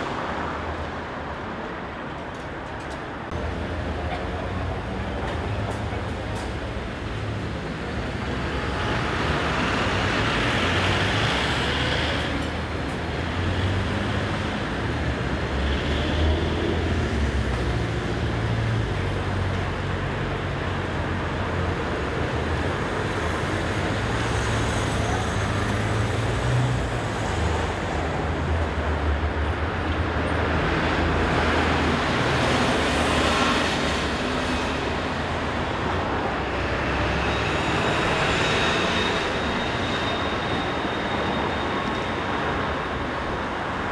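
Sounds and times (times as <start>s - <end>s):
street traffic rumble: 0.0s - 43.9s
tram pulling away: 16.2s - 43.9s.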